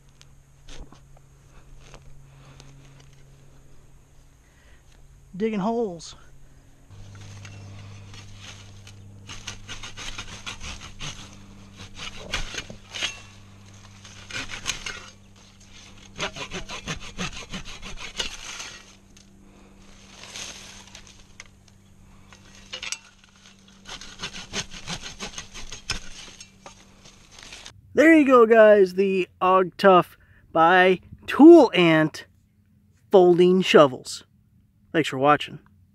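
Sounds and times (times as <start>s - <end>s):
steady low hum: 0.0s - 33.2s
saw cutting through branch: 6.9s - 27.7s.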